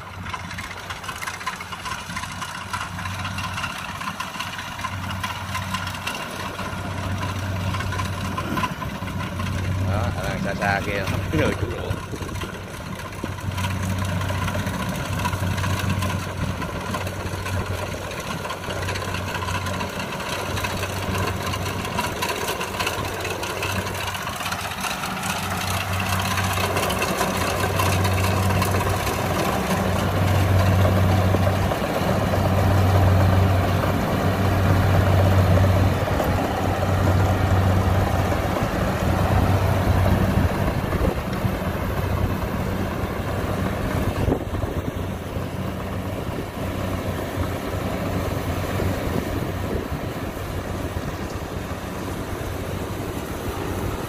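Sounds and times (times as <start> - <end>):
combine harvester running: 0.0 - 54.0.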